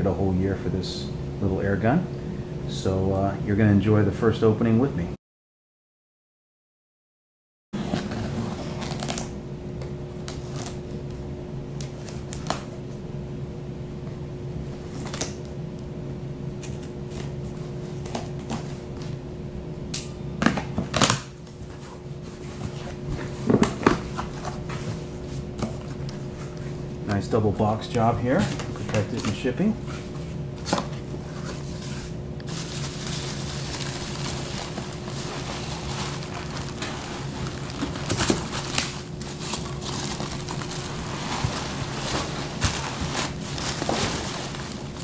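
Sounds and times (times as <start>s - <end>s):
steady low hum: 0.0s - 5.2s, 7.8s - 45.0s
cardboard flaps rustling: 28.4s - 45.0s.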